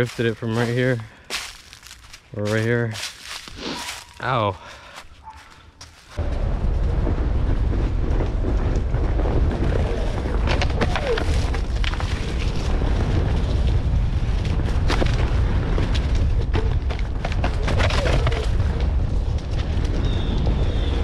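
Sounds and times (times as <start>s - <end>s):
wind buffeting microphone: 6.2s - 21.0s.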